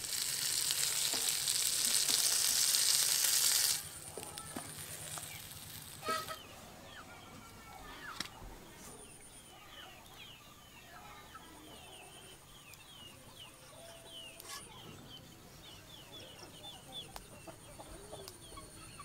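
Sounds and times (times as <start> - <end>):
birds chirping: 0.6 - 19.0.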